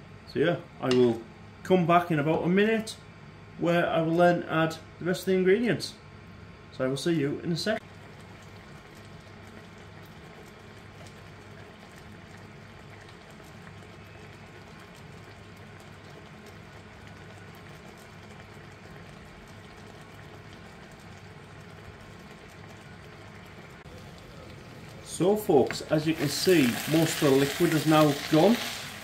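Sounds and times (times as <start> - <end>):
sauce bubbling and sizzling in pan: 7.8 - 29.0.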